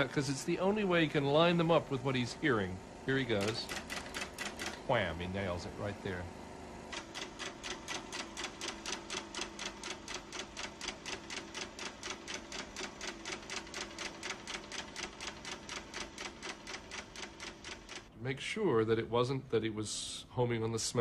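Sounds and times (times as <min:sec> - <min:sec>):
faint steady hum: 0:00.0 - 0:21.0
film projector mechanism clicking: 0:03.3 - 0:04.9, 0:06.9 - 0:18.1.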